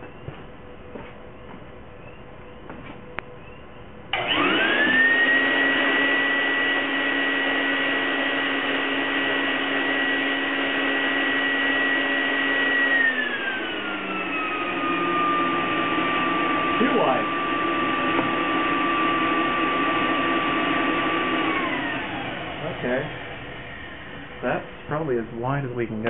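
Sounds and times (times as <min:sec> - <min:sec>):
electric motor whining: 0:04.1 - 0:24.6.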